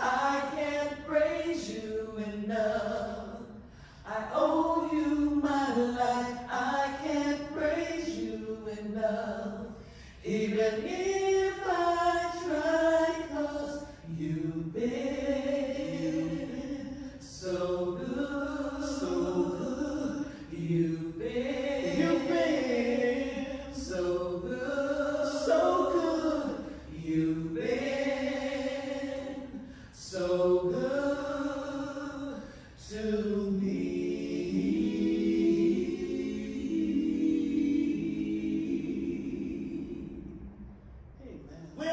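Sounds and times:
group singing worship song: 0:00.0 - 0:40.7.

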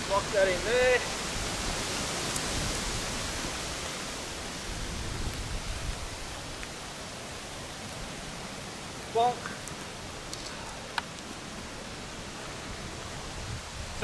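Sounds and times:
steady rain falling: 0:00.0 - 0:14.0
faint clicks: 0:09.4 - 0:11.4.

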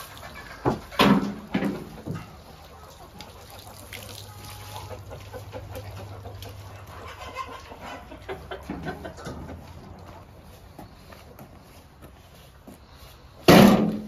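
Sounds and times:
chickens clucking: 0:00.0 - 0:14.0
wheelbarrow rumbling on concrete: 0:07.0 - 0:14.0.

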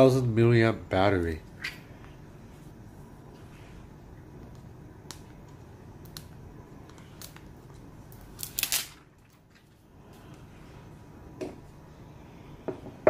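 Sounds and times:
plastic film crinkling: 0:06.0 - 0:09.8.

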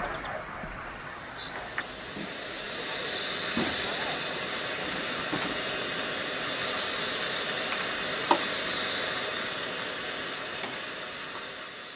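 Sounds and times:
steam hissing from locomotive: 0:01.0 - 0:11.9.

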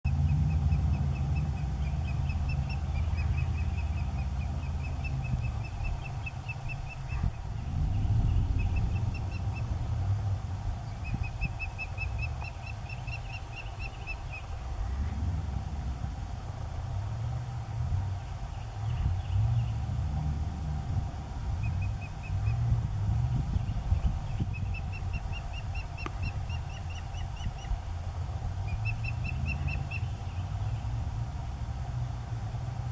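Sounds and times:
steady low rumble: 0:00.0 - 0:32.9
osprey whistled chirps: 0:28.6 - 0:30.4.

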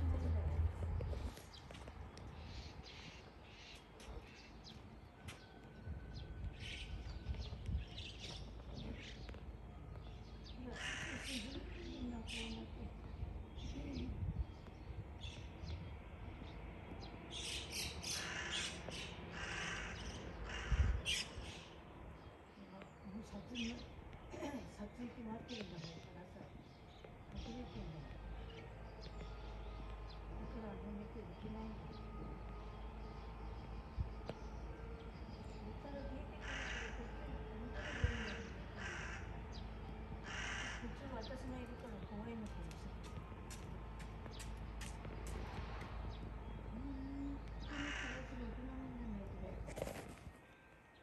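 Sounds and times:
crows cawing: 0:10.7 - 0:11.6, 0:18.0 - 0:21.3, 0:36.4 - 0:39.6, 0:40.2 - 0:41.1, 0:47.6 - 0:48.4.

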